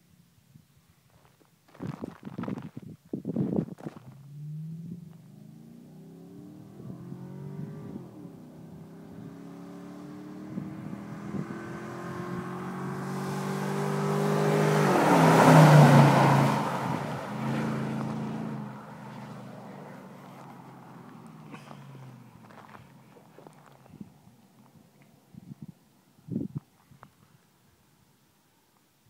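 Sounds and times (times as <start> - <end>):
pickup truck engine passing by: 4.3 - 23.2.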